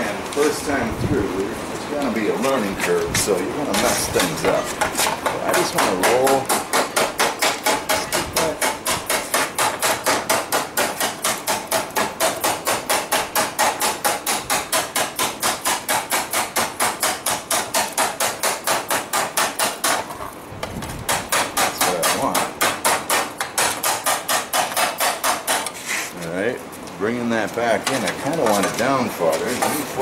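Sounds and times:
hammer striking hot metal: 3.8s - 20.1s, 21.1s - 25.8s.

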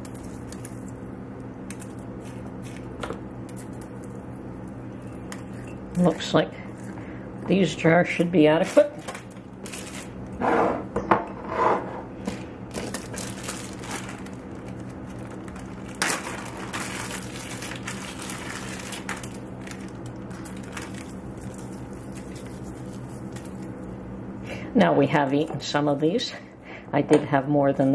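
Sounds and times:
steady low hum: 0.0s - 27.9s
plastic bag crinkling: 8.6s - 10.3s, 12.3s - 23.9s.

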